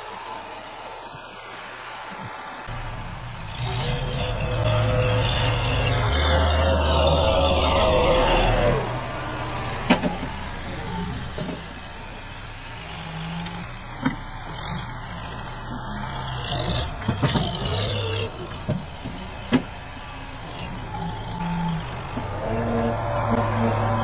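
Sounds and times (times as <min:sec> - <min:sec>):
tractor diesel engine humming: 0:02.2 - 0:24.0.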